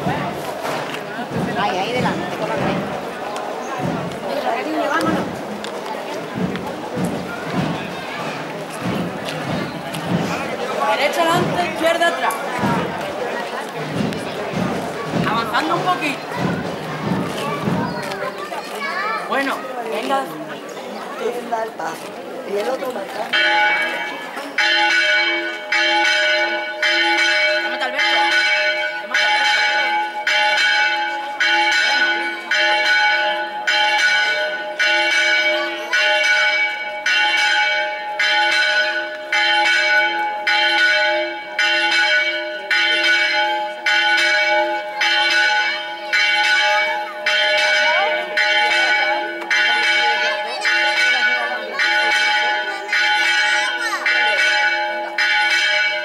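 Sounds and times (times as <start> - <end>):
church bell ringing: 23.3 - 56.0.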